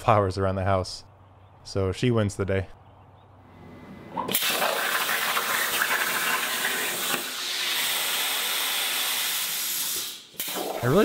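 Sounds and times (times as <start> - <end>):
plasma cutter torch hissing: 4.3 - 10.6.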